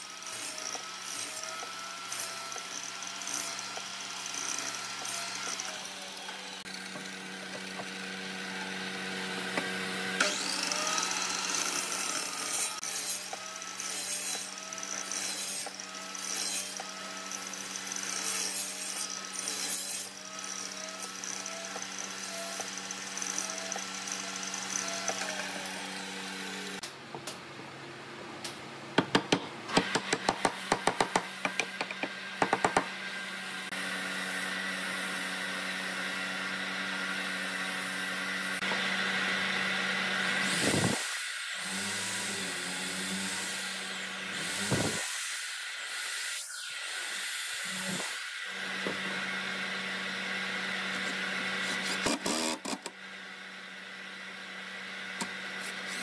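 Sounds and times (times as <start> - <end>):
sharp knocks on wood: 29.0 - 32.9.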